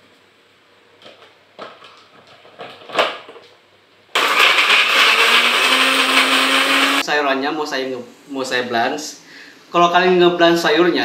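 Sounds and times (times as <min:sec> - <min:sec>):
blender grinding: 0:04.2 - 0:07.0.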